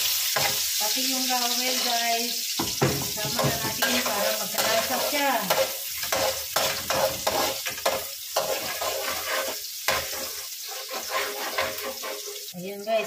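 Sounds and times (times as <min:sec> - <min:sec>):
metal spatula scraping a wok: 0:00.0 - 0:00.8, 0:03.2 - 0:12.6
onion and garlic sizzling in oil: 0:00.0 - 0:13.0.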